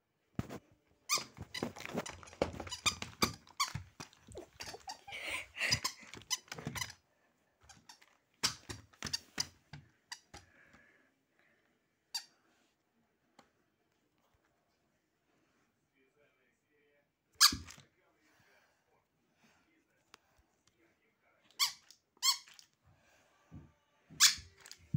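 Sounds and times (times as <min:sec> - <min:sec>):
rustling and bumps of handling: 0:01.3 - 0:06.8
squeaky plush toy: 0:21.6 - 0:22.6, 0:24.2 - 0:24.6.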